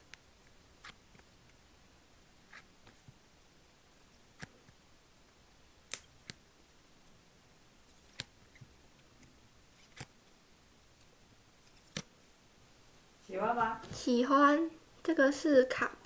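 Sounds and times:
plastic sleeves clicking: 4.3 - 4.8, 8.0 - 10.2, 11.0 - 12.1.

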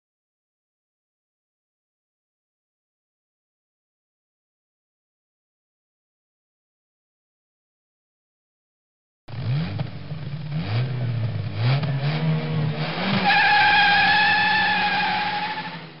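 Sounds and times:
racing car engine accelerating: 9.3 - 16.0
tyre squeal: 13.1 - 16.0.

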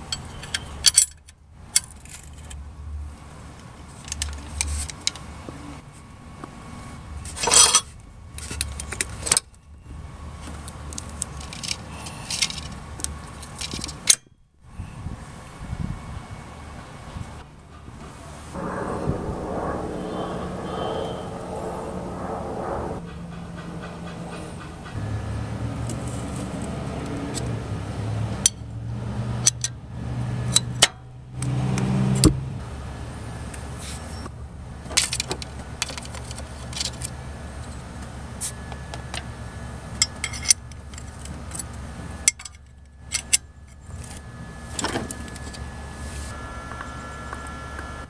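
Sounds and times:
steady low hum: 18.3 - 26.6.

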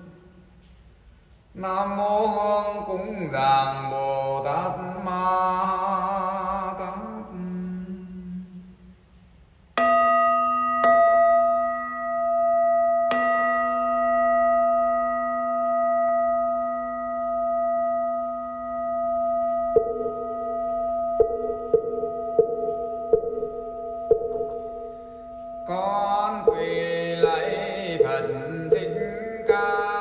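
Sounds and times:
bowl bell ringing: 9.8 - 30.0.

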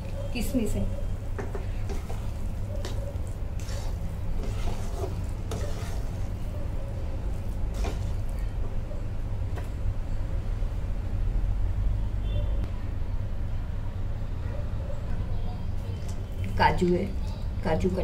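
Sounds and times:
metal spatula scraping pan: 1.4 - 3.0, 3.6 - 6.4, 7.7 - 8.3.

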